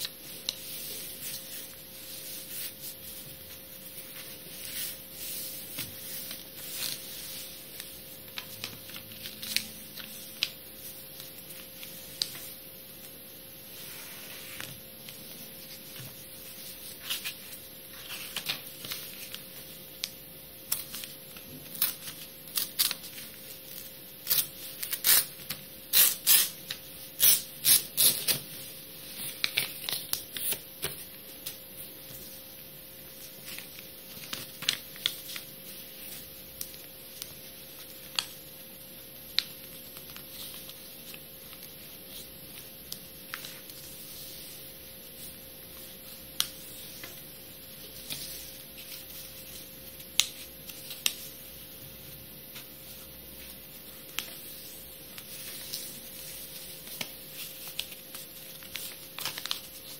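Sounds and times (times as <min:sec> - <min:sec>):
paper folding crackles: 0:00.0 - 0:12.6, 0:13.7 - 0:38.5, 0:39.3 - 0:51.4, 0:52.5 - 0:59.9
paper rustling: 0:33.1 - 0:38.4, 0:52.5 - 0:59.9.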